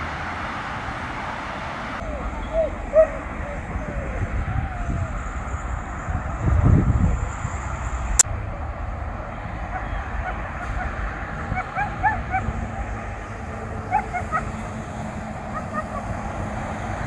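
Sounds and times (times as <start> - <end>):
low outdoor rumble: 0.8 - 17.0
dogs yelping: 2.0 - 6.4, 9.6 - 16.4.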